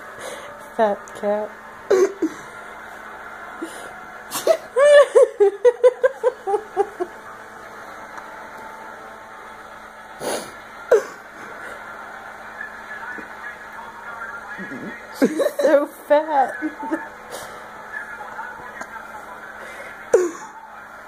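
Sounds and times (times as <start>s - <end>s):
person laughing: 4.3s - 7.2s, 15.2s - 15.9s.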